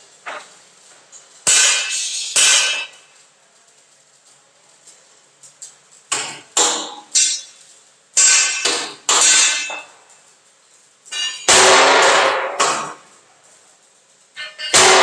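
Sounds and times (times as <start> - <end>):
tool striking steel: 1.4 - 3.0, 6.1 - 7.6, 8.2 - 10.0, 11.1 - 13.0, 14.4 - 15.0.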